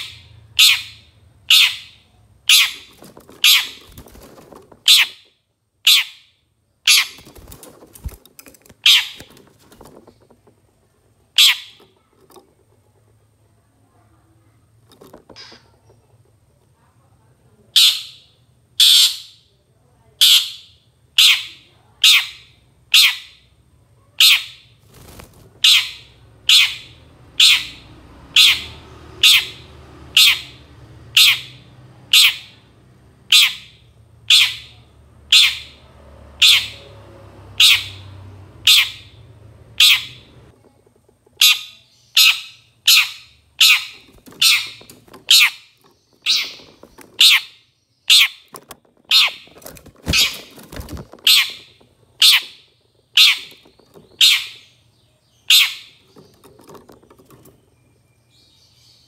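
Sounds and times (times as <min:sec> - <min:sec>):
bird giving harsh calls: 0:00.0 - 0:04.1, 0:04.8 - 0:07.6, 0:08.8 - 0:09.4, 0:11.4 - 0:11.8, 0:17.8 - 0:19.4, 0:25.6 - 0:27.8, 0:28.4 - 0:32.6, 0:33.3 - 0:35.8, 0:37.6 - 0:39.2, 0:41.4 - 0:54.8, 0:55.4 - 0:56.0.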